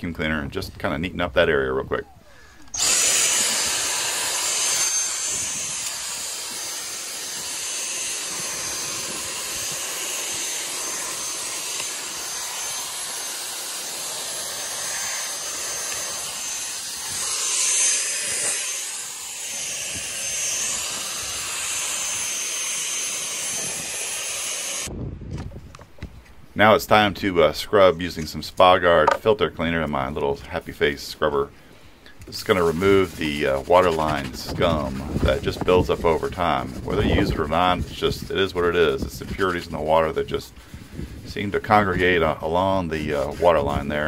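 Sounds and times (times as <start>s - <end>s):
vacuum cleaner whining: 2.6s - 24.9s.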